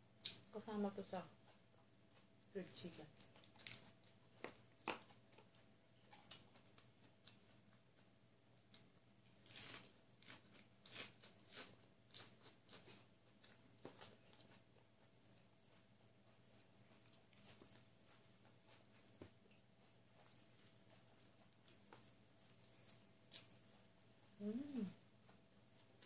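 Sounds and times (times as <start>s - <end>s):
chewing and crunching: 0.2s - 26.0s.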